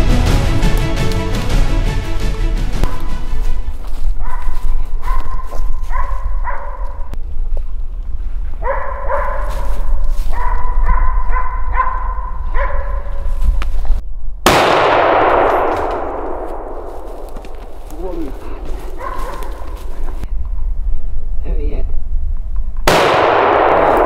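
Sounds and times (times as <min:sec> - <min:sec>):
dog barking: 0:02.8 - 0:03.1, 0:04.2 - 0:07.0, 0:08.6 - 0:13.2, 0:18.9 - 0:19.8
rifle shot echoing: 0:14.4 - 0:17.7, 0:22.9 - 0:24.0.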